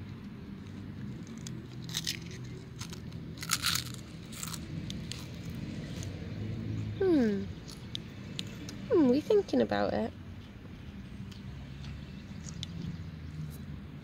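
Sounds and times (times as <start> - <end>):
crisp packet crinkling: 1.2 - 5.3.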